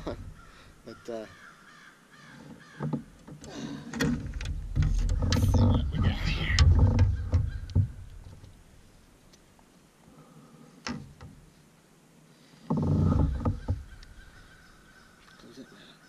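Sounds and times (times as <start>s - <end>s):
low rattling thuds: 3.9s - 8.6s.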